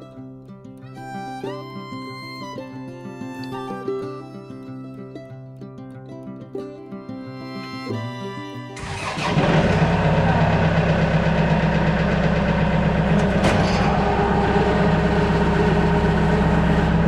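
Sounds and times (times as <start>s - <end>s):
guitar music: 0.0s - 17.0s
tractor diesel engine starting: 8.8s - 17.0s.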